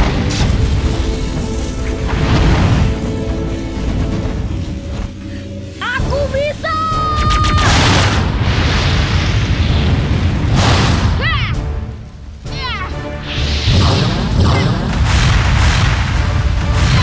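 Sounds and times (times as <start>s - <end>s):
dramatic music: 0.0s - 17.0s
swooshes: 13.1s - 17.0s.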